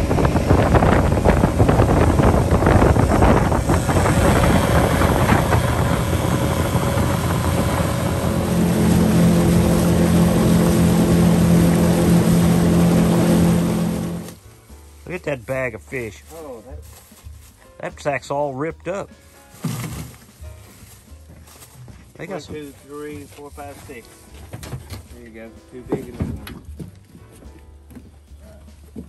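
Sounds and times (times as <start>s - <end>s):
outboard motor humming: 0.0s - 14.4s, 19.5s - 21.0s
water rushing past hull: 0.0s - 14.4s
wind buffeting microphone: 0.0s - 14.4s.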